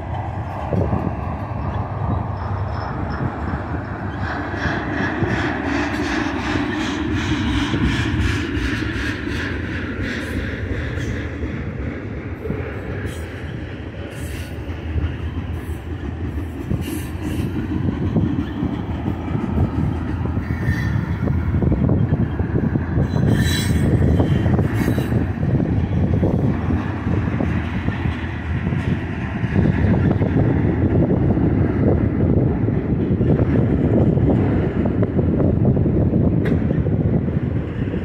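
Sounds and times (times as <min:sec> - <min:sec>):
train wheel squeals: 0:00.0 - 0:30.4
train wheels rumbling on rails: 0:00.0 - 0:38.0.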